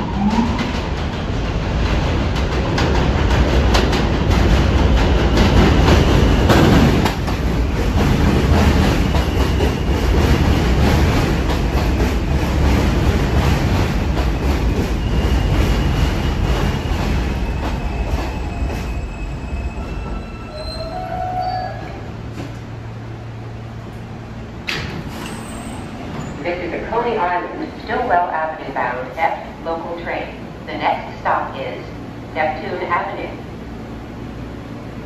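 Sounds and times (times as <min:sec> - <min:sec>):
subway train rumbling: 0:00.0 - 0:35.0
wheel squeal: 0:16.8 - 0:22.0, 0:25.1 - 0:26.4
brake squeals: 0:25.1 - 0:26.4.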